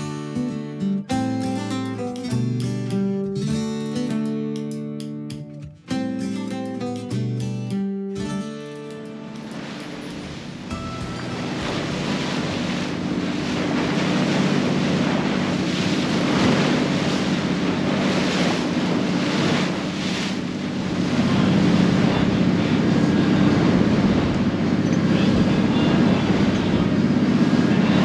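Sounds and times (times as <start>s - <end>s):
rush of the sea: 8.6s - 28.0s
boat engine running: 8.8s - 28.0s
wind buffeting microphone: 9.5s - 28.0s.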